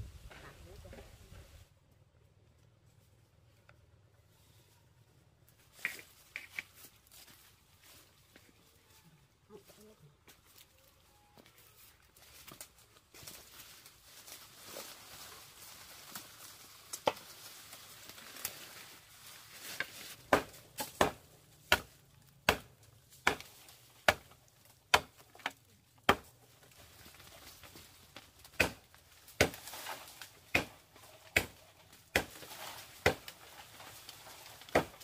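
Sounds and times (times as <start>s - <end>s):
blade chopping into wood: 20.2s - 25.5s, 26.1s - 26.3s, 28.5s - 29.7s, 30.5s - 33.3s, 34.6s - 35.0s.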